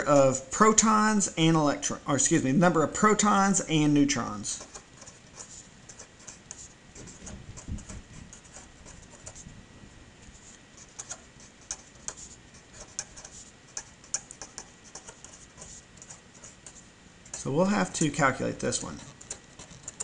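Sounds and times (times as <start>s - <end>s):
marker pen scratching on paper: 3.0s - 9.6s, 10.2s - 20.0s.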